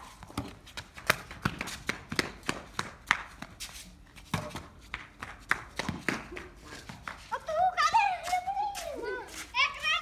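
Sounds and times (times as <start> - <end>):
slippers slapping on tiles: 0.0 - 9.6.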